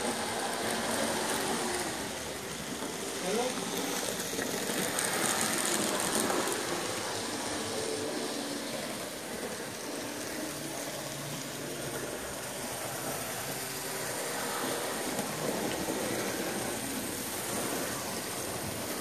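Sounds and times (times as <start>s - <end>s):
model trains running on track: 0.0s - 19.0s.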